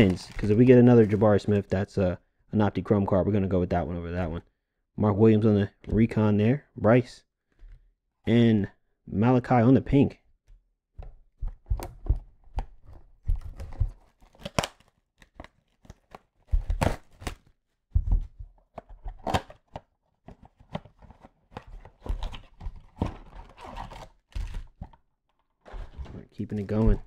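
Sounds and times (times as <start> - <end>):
wrapper crinkling and tearing: 0.0 - 1.4, 13.6 - 17.5.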